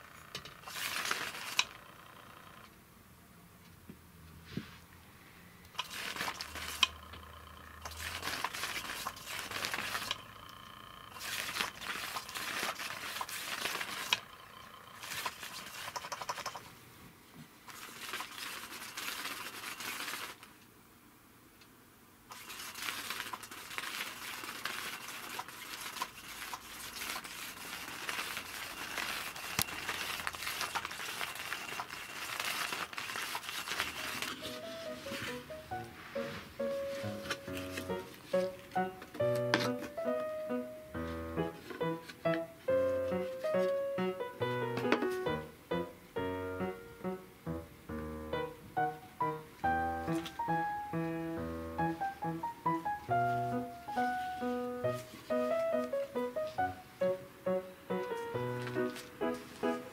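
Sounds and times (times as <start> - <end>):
toy motor rattling under fabric: 0.0 - 2.6, 5.8 - 10.2, 11.1 - 16.7, 17.7 - 20.5, 22.3 - 35.5.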